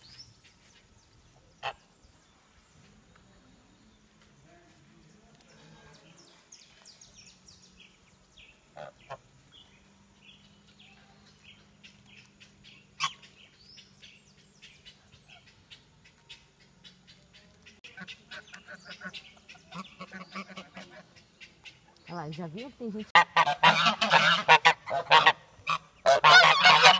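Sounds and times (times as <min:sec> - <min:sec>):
geese and ducks calling: 0:01.6 - 0:02.0, 0:08.4 - 0:09.7, 0:10.8 - 0:26.9.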